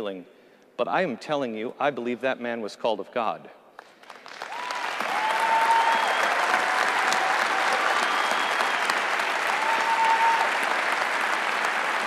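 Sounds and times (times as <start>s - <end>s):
audience applauding: 3.8s - 12.0s
long cheers: 4.4s - 12.0s.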